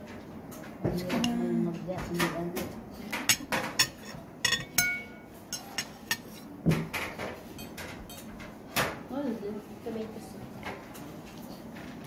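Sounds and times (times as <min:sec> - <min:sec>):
metal spoon clinking on ceramic: 0:03.3 - 0:06.4.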